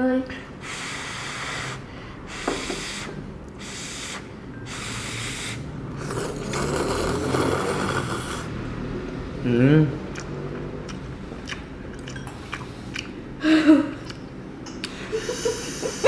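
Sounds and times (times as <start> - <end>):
noodles being slurped: 5.3 - 8.5.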